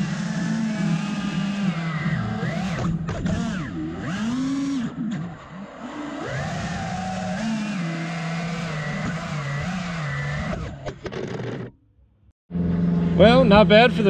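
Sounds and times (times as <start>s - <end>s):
drone motors whining: 0.0s - 14.0s.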